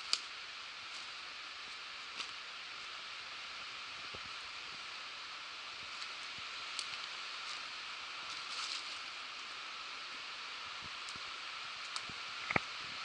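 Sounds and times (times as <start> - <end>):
footsteps on leaves and stones: 6.9 - 9.1.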